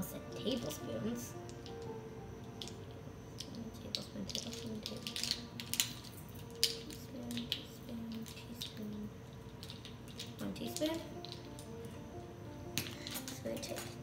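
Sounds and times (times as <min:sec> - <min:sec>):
measuring spoons clattering: 0:03.4 - 0:11.7.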